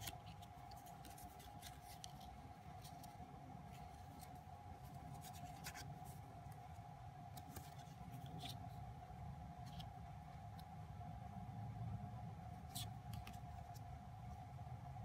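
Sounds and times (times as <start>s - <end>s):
photocards shuffled by hand: 0.0s - 6.7s, 7.3s - 8.8s
steady low hum: 0.0s - 15.0s.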